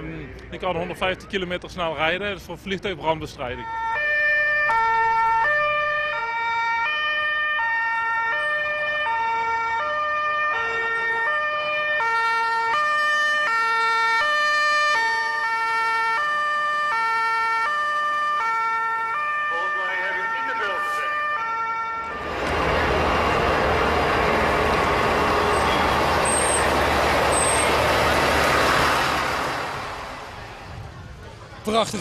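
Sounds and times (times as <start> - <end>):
two-tone siren: 3.6 - 28.2.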